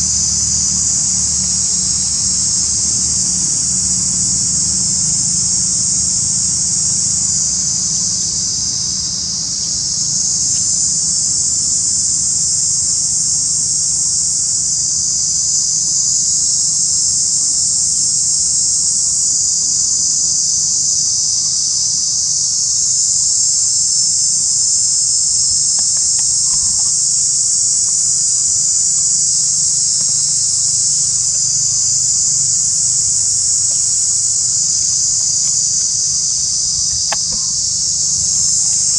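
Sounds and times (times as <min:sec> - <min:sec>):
insects buzzing: 0:00.0 - 0:38.9.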